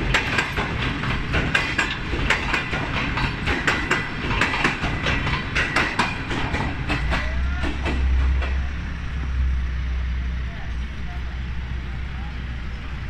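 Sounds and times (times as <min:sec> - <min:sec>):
train wheels clattering over rail joints: 0:00.0 - 0:09.3.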